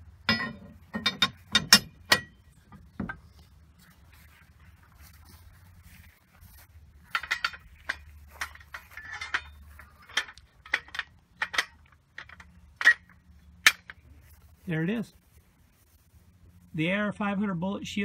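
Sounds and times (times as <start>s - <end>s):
steel clinking against steel: 0.2s - 3.3s, 7.0s - 14.1s.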